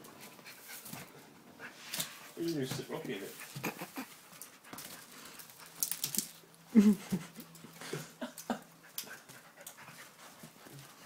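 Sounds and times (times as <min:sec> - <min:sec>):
dog panting and sniffing: 0:00.0 - 0:02.5, 0:03.1 - 0:05.8, 0:08.6 - 0:11.0
clicks and rustles: 0:03.6 - 0:06.6.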